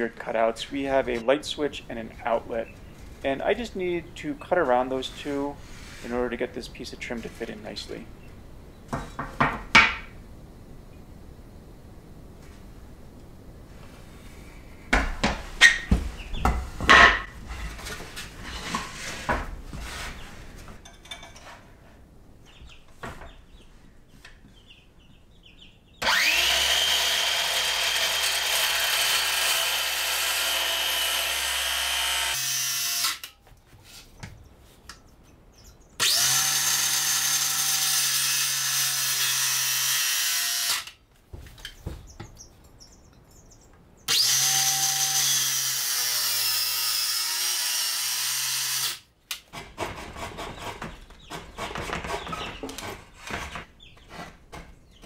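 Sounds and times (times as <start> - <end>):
boards knocked on floor: 8.9 - 10.1
circular saw cutting wood: 26.0 - 33.3, 36.0 - 40.9, 44.1 - 49.0.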